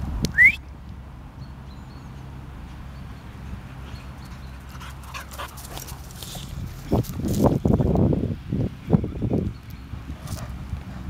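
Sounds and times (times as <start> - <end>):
person whistling: 0.3 - 0.6.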